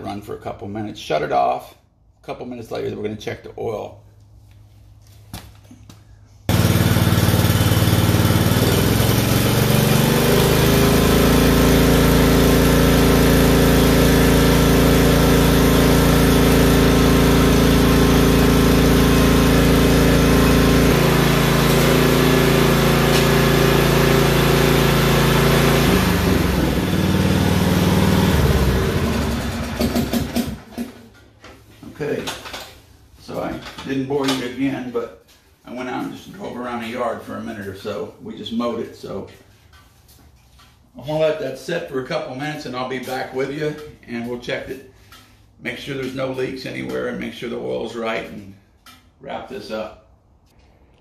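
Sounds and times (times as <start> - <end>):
mower engine running: 6.5 - 30.8.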